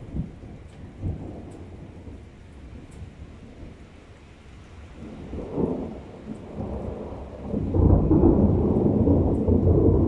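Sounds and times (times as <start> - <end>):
rolling thunder: 5.0 - 10.0.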